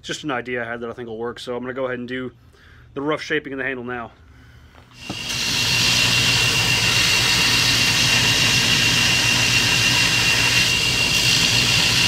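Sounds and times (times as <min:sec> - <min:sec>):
thin steady whine: 0:04.8 - 0:12.0
belt grinder running: 0:05.0 - 0:12.0
high hiss of grinding: 0:05.0 - 0:12.0.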